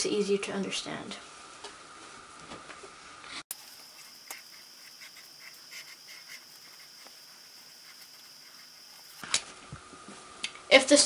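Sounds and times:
pen scratching on paper: 0:04.0 - 0:09.2.

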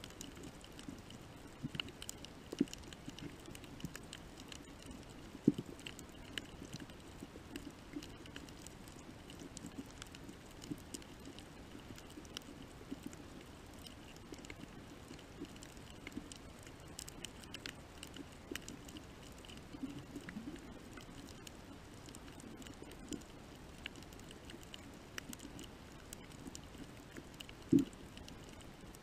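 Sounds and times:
underwater clicks and crackles: 0:00.0 - 0:29.0.

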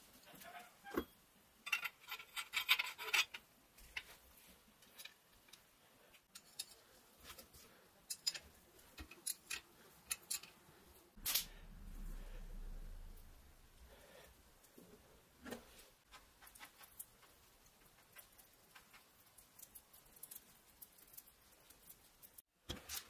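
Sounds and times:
tools scraping and clicking: 0:00.9 - 0:04.2, 0:04.8 - 0:10.6.

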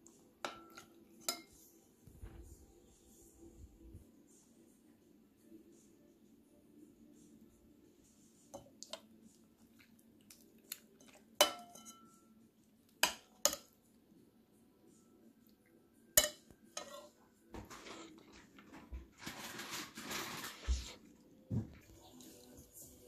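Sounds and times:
metal spoon clinking on ceramic bowl: 0:11.4 - 0:12.3.

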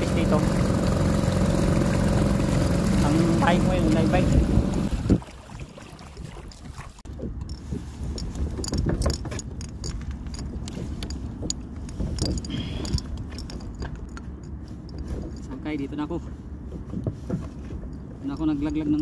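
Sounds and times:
steady low rumble: 0:00.0 - 0:05.6.

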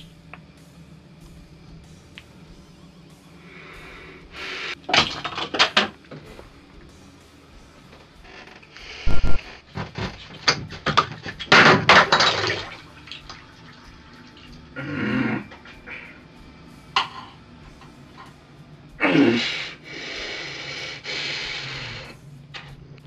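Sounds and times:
running splashing water: 0:10.9 - 0:14.7.

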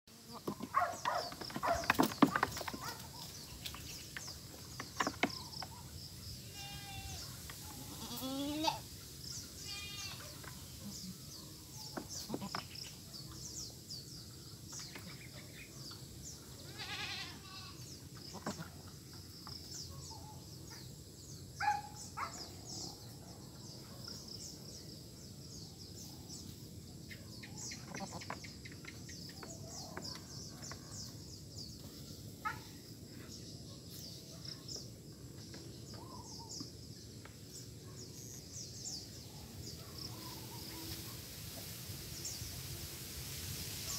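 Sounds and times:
goats bleating: 0:07.8 - 0:08.8, 0:16.7 - 0:17.8.

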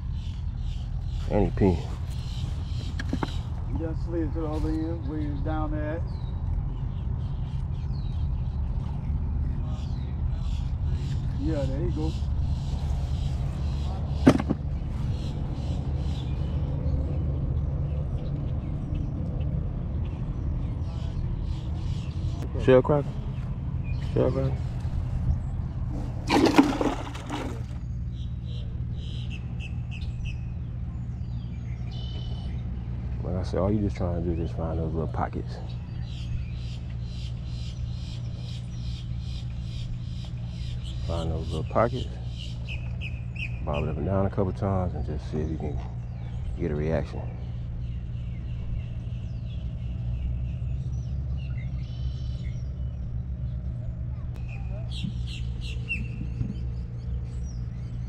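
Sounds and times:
low engine rumble: 0:00.0 - 0:58.0
faint bird chirps: 0:26.6 - 0:32.9, 0:45.2 - 0:58.0
steady low rumble: 0:42.1 - 0:58.0.

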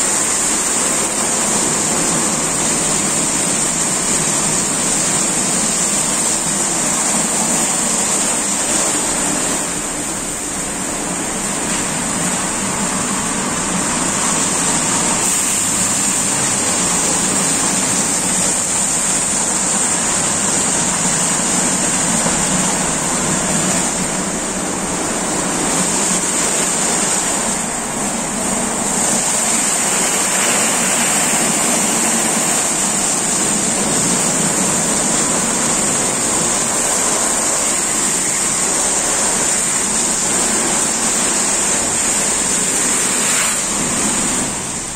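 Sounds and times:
car wash brushes spinning: 0:00.0 - 0:44.9
water spray hissing: 0:11.5 - 0:44.9.

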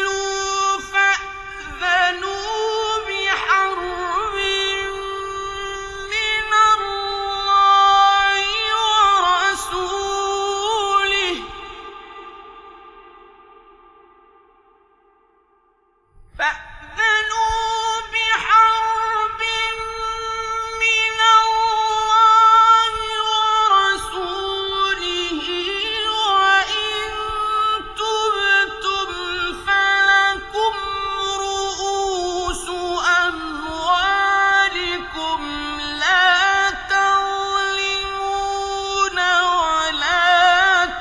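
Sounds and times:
man chanting recitation: 0:00.0 - 0:13.5, 0:16.4 - 0:41.0.

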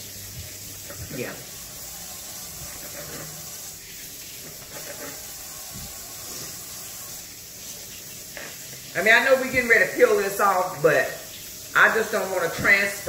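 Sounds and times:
faucet running into metal sink: 0:00.0 - 0:13.0
potatoes being rinsed: 0:00.0 - 0:13.0.

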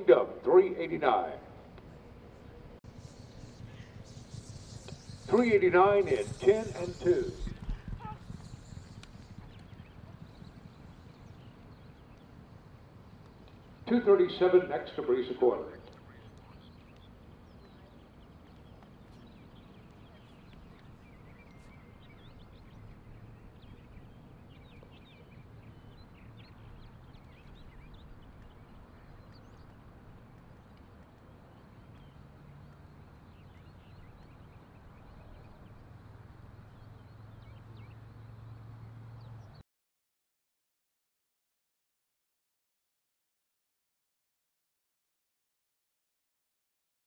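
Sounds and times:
low hum and hiss: 0:00.0 - 0:39.1
bird chirps: 0:02.3 - 0:12.4, 0:15.9 - 0:29.9, 0:31.5 - 0:35.9.

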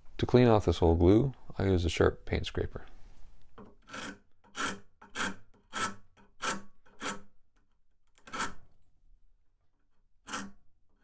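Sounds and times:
paint scraper scraping wood: 0:03.6 - 0:08.7, 0:10.0 - 0:11.0.

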